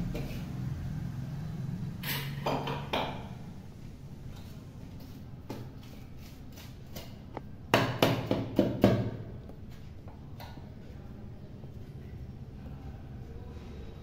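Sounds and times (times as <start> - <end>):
spoon scraping a metal plate: 2.0 - 2.7.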